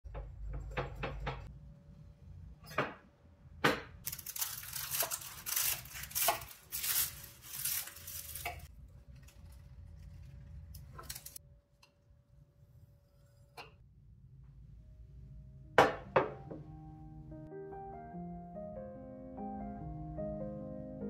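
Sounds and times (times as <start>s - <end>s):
filo pastry crackling and crunching: 4.0s - 11.4s.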